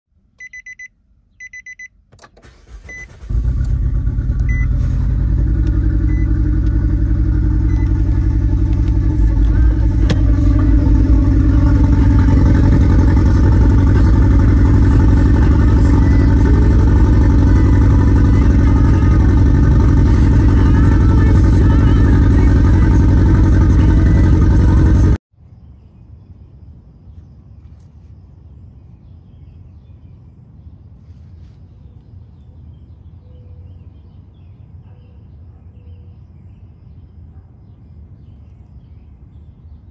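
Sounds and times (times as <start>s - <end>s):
short beeps: 0.4s - 2.0s, 4.5s - 4.8s
car engine cranking and idling: 1.5s - 25.2s.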